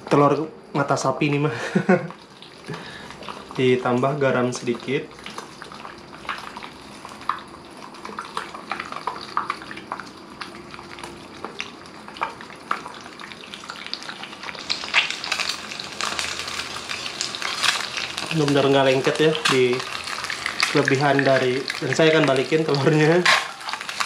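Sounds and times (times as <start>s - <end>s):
egg frying in oil: 1.2s - 24.0s.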